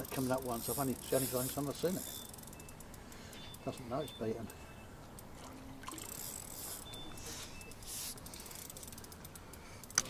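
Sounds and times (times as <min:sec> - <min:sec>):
fishing reel clicking: 0:00.0 - 0:04.6, 0:05.9 - 0:10.0.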